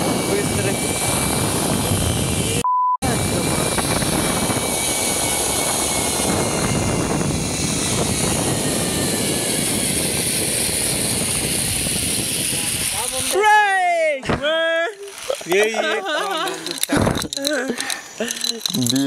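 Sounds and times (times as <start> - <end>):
wind rushing over microphone: 0.0 - 13.4
zipline trolley on steel cable: 0.0 - 14.1, 14.8 - 19.0.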